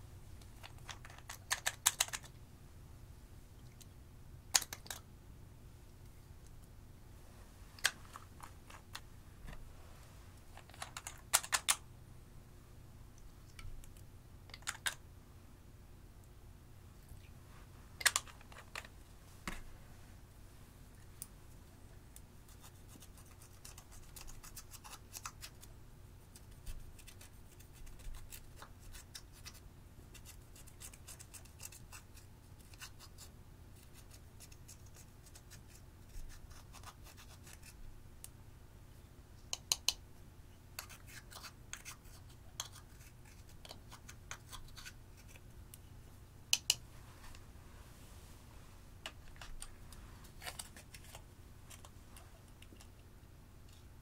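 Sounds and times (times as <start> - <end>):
dry scratching of eyeshadow: 22.4 - 25.7, 26.3 - 37.8, 40.8 - 45.4, 46.9 - 53.0.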